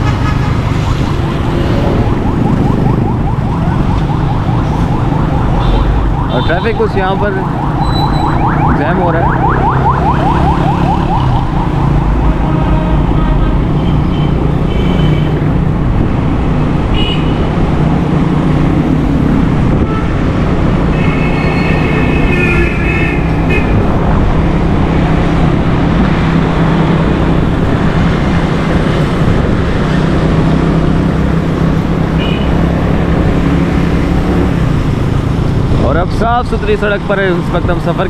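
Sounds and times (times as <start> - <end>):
engine and road noise: 0.0 - 38.0
vehicle horn toots: 20.9 - 23.8.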